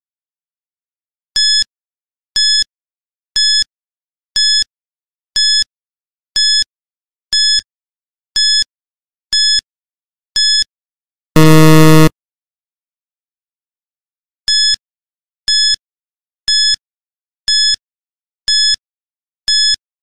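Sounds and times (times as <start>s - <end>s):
high-pitched countdown beeps: 11.4s - 12.1s.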